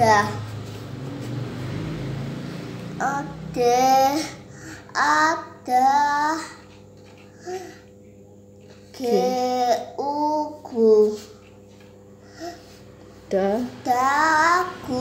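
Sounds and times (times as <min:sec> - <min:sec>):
child reading syllables aloud: 0:00.0 - 0:00.7, 0:03.0 - 0:06.8, 0:08.9 - 0:11.4, 0:13.6 - 0:15.0.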